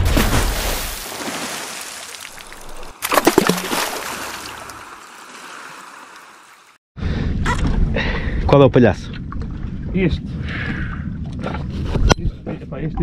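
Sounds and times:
sea water splashing and sloshing: 0.0s - 6.8s.

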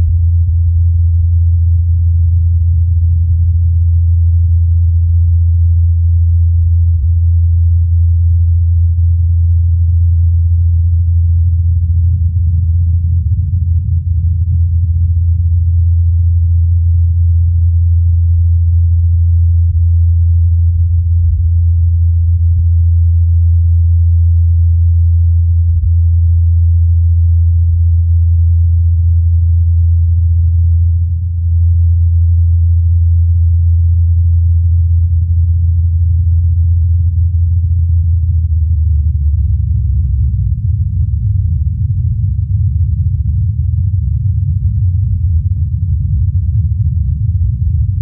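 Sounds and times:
helicopter rotors low drone: 37.5s - 48.0s.

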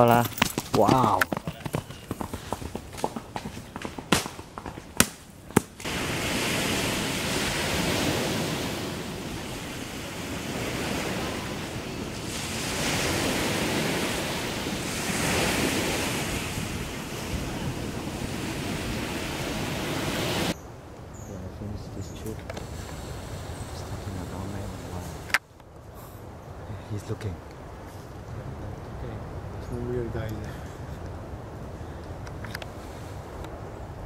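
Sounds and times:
waves washing in: 5.8s - 20.6s, 22.4s - 25.4s
wind rushing: 5.8s - 20.6s.

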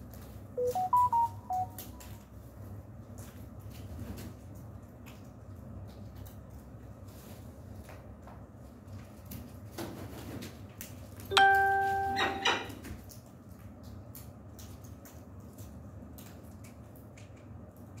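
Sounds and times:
low steady hum: 0.6s - 2.4s, 11.3s - 13.0s
bell-like ring: 11.3s - 12.7s.

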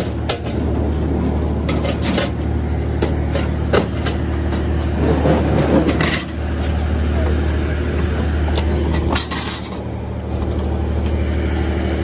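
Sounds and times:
ferry engine idling: 0.0s - 12.0s.

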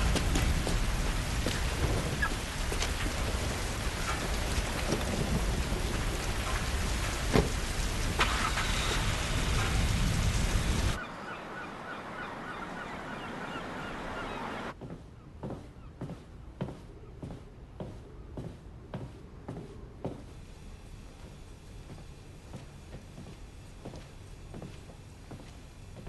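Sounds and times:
rain falling: 0.0s - 14.8s
bird calling in quick notes: 11.0s - 14.7s.

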